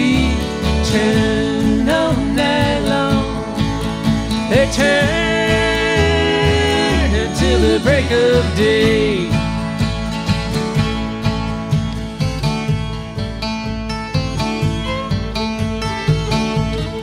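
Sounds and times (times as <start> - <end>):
acoustic country string band: 0.0 - 17.0.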